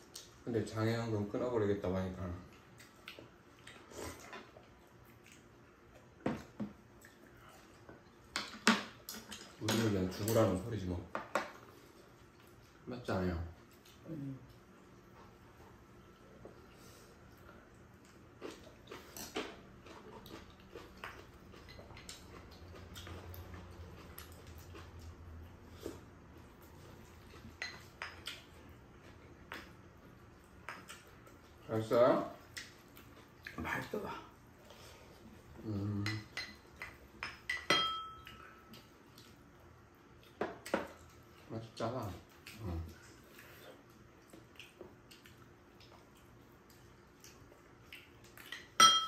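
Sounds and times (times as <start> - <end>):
chopsticks and spoon tapping bowls: 36.1 - 38.5, 48.5 - 49.0
metal spoon clinking against bowl: 37.2 - 38.4, 48.8 - 49.0.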